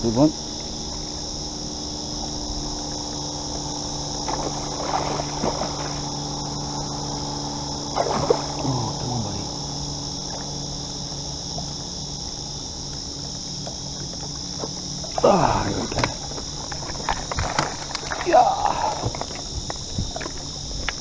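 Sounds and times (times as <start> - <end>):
high insect drone: 0.0 - 21.0
water splashing: 2.2 - 21.0.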